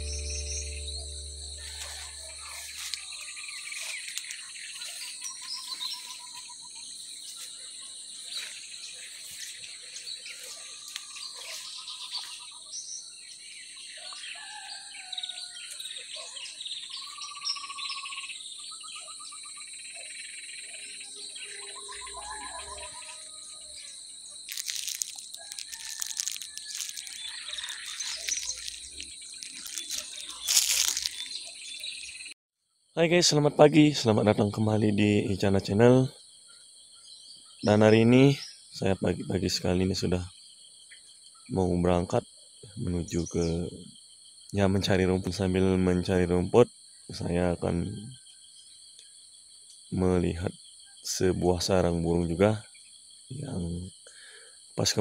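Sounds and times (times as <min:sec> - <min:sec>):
birds trilling: 0:00.0 - 0:07.4, 0:20.7 - 0:32.3
insects droning: 0:00.0 - 0:55.0.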